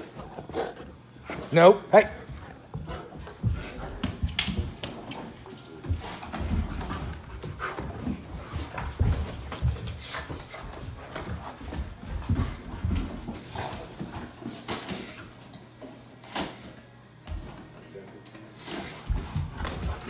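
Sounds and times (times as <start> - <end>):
dog paws thudding on carpet: 2.2 - 14.3.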